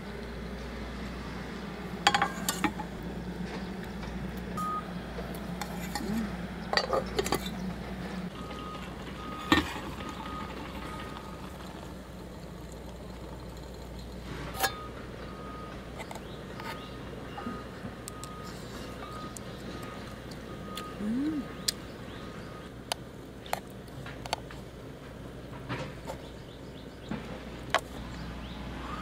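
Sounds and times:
steady low hum: 0:00.0 - 0:29.0
metal cookware clinking: 0:02.1 - 0:02.8.

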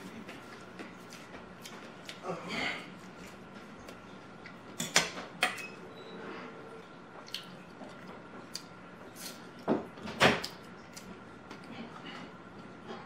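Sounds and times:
wet chewing and smacking: 0:00.0 - 0:02.2, 0:07.2 - 0:09.7.

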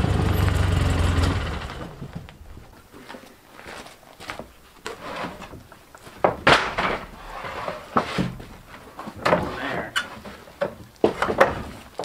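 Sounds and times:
wooden pallets scraping: 0:00.0 - 0:12.0
wooden pallets knocking: 0:04.9 - 0:12.0.

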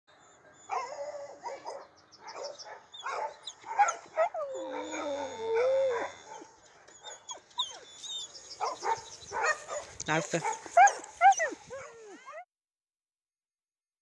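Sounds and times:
dog yipping and whining: 0:02.4 - 0:09.5, 0:10.5 - 0:12.5
dog howling: 0:03.0 - 0:06.5, 0:10.5 - 0:12.5.

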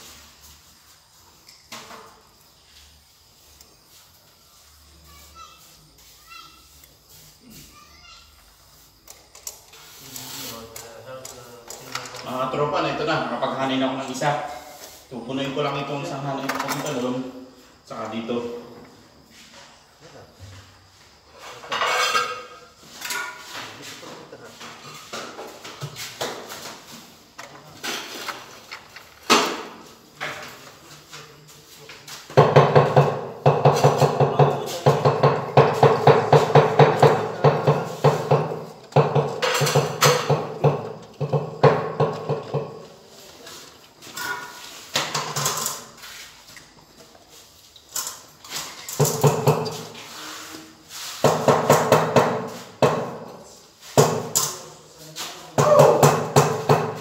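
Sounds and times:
trowel scraping and tapping tiles: 0:21.4 - 0:26.8, 0:32.1 - 0:42.9, 0:47.9 - 0:55.4.

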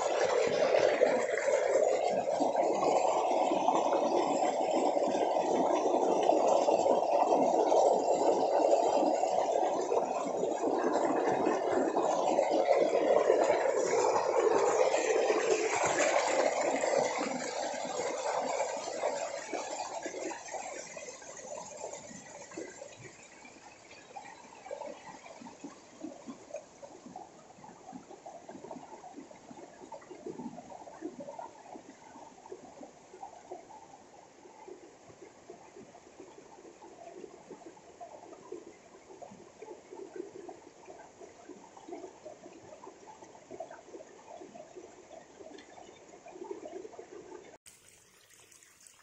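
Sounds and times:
water cascading over stones: 0:47.6 - 0:49.0.

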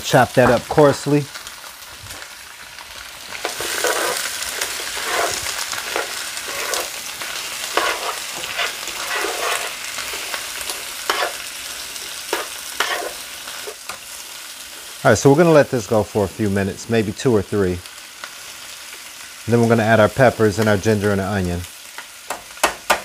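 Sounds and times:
food sizzling in oil: 0:00.0 - 0:23.0
tongs scraping pan: 0:03.3 - 0:14.0.

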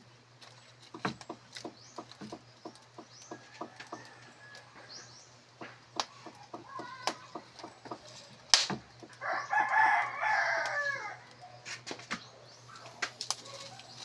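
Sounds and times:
wood fire crackling: 0:00.0 - 0:14.0
rooster crowing: 0:03.4 - 0:05.0, 0:09.2 - 0:11.4.

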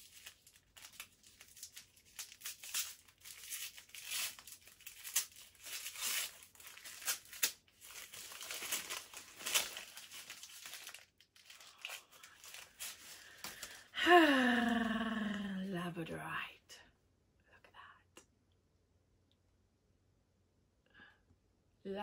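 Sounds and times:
wrapping crinkling and tearing: 0:00.0 - 0:13.9.

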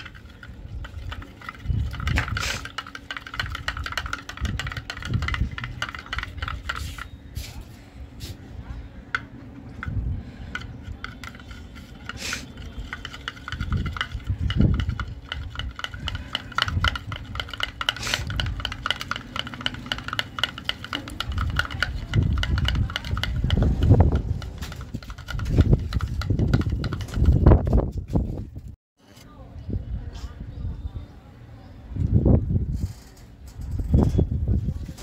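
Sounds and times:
spoon scraping slime in glass dish: 0:10.6 - 0:23.6.

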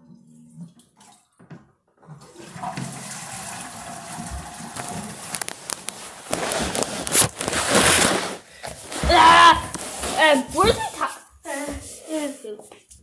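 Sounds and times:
toilet flushing: 0:02.0 - 0:06.8.

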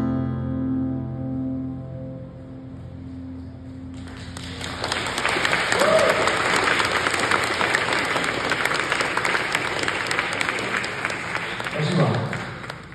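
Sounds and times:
acoustic guitar: 0:00.0 - 0:05.2
audience applause: 0:03.9 - 0:12.9
crowd whoop: 0:05.4 - 0:07.0.

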